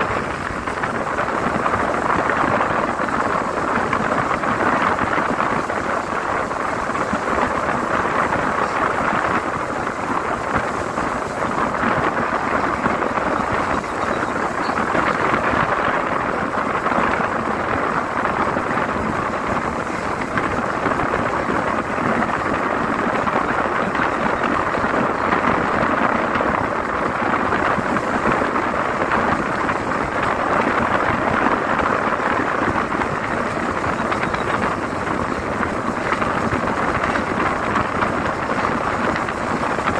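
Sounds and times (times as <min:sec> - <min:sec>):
wind and road noise in vehicle: 0:00.0 - 0:39.9.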